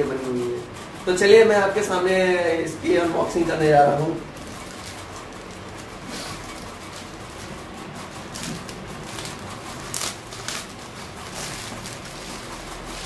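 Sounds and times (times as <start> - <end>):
plastic bag rustling and crinkling: 4.4 - 13.0.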